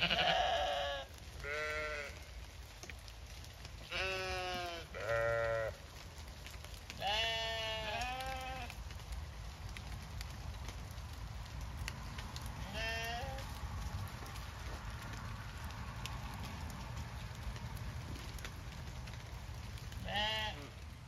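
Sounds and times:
sheep bleating: 0.0s - 2.2s, 3.8s - 5.8s, 7.0s - 8.7s, 12.7s - 13.4s, 20.0s - 20.8s.

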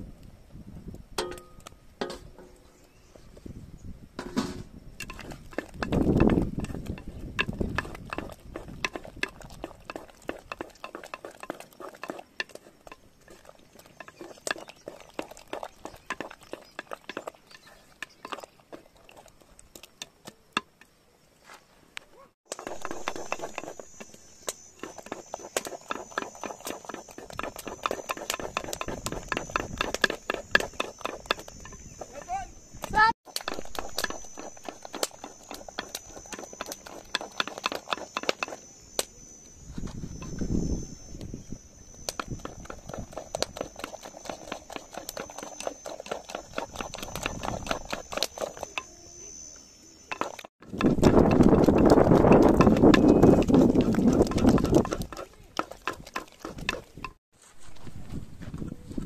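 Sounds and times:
utensils clinking on pots and dishes: 4.2s - 18.5s, 22.5s - 32.3s, 50.1s - 57.2s.

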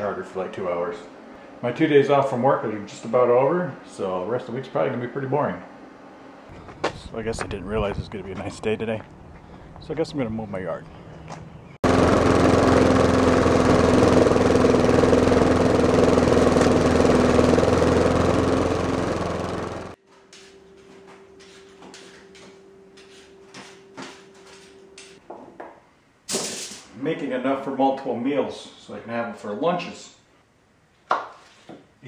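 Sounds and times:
lawn mower engine running: 11.8s - 20.0s.

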